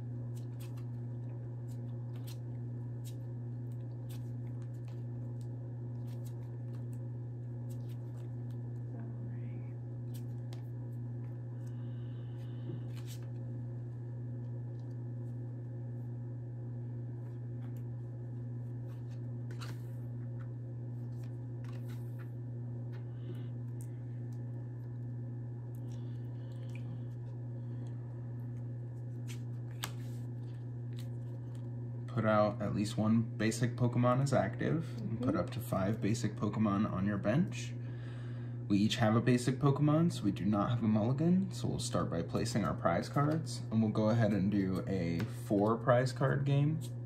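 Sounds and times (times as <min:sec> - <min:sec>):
steady low hum: 0:00.0 - 0:47.0
playing cards clicking and rustling: 0:12.8 - 0:13.4, 0:18.8 - 0:20.4, 0:21.0 - 0:22.3, 0:29.1 - 0:31.6.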